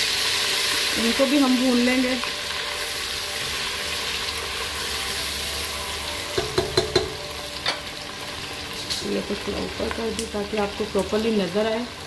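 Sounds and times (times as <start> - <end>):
onions sizzling in hot oil: 0.0 - 12.0
spatula knocking against pot: 6.4 - 7.2.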